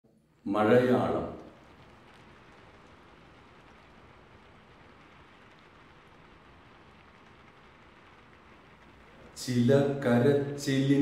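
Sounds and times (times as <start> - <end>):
faint steady rain: 0.1 - 11.0.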